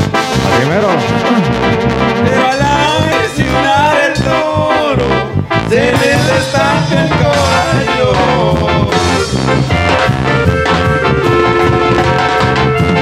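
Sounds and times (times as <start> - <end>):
live band playing: 0.0 - 13.0.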